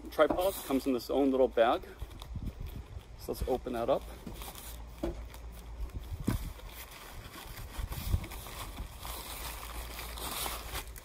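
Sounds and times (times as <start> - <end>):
dull thumps: 4.2 - 5.3.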